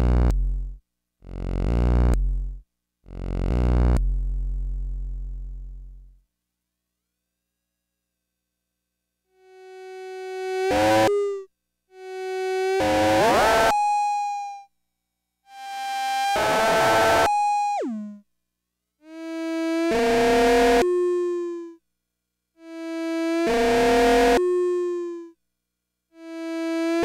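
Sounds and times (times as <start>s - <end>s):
buzzy analog synthesizer notes: 0.0s - 6.1s, 16.4s - 18.2s.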